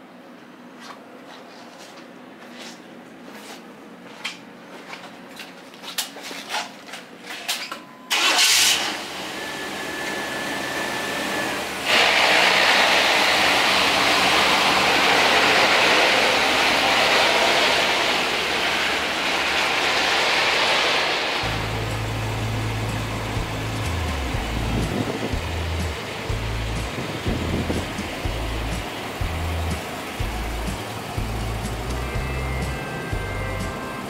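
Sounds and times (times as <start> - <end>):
truck engine cranking and idling: 8.1 - 34.0
high steady tone: 21.4 - 34.0.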